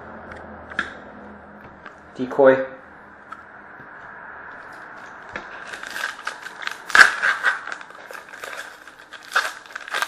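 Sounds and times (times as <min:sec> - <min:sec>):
wrapper tearing and crinkling: 0:05.0 - 0:10.0.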